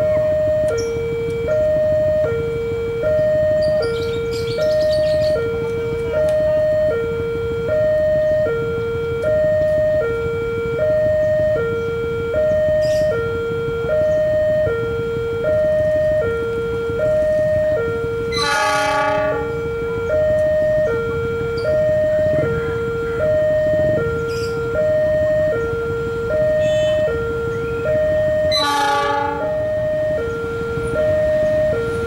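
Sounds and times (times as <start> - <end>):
train rumble: 0.0 - 32.0
two-tone level crossing siren: 0.0 - 32.0
train horn blast: 16.2 - 21.6, 25.6 - 27.8, 28.4 - 31.0.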